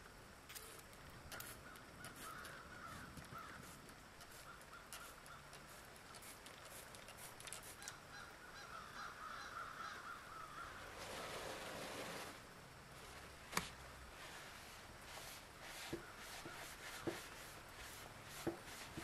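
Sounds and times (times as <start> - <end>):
foam fizzing and crackling on metal: 0.5 - 8.0.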